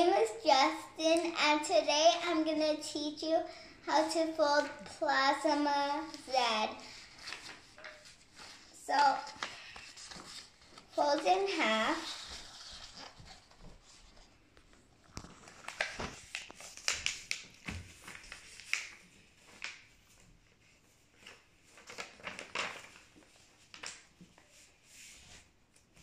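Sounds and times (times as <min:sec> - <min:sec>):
paper rustling and crinkling: 0:06.0 - 0:26.0.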